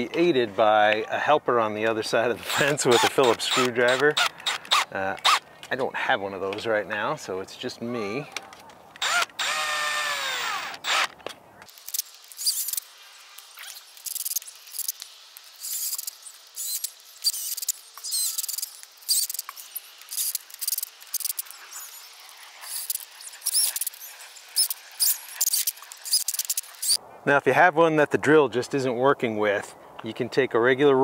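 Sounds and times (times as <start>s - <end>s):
cordless drill driving screws: 2.5s - 5.4s, 9.0s - 15.0s, 15.6s - 27.0s
high squeaking of screws: 2.5s - 5.7s, 9.0s - 27.0s.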